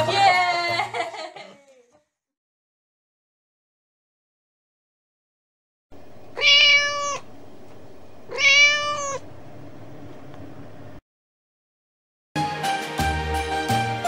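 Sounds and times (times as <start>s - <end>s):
cat meowing: 6.3s - 7.3s, 8.3s - 9.3s.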